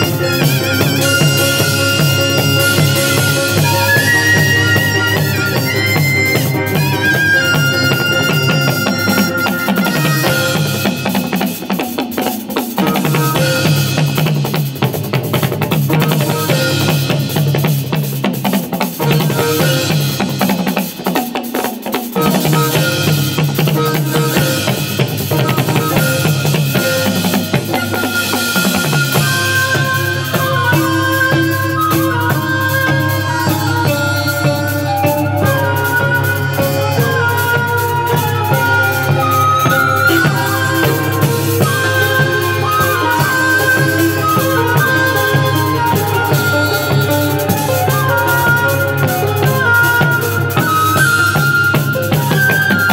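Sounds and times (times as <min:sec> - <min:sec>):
fiddle melody: 0:00.0 - 0:11.4, 0:22.2 - 0:52.9
drum kit with snare and cymbals: 0:00.0 - 0:52.9
fast drumming on barrel drums: 0:00.0 - 0:52.9
shawm melody: 0:00.0 - 0:52.9.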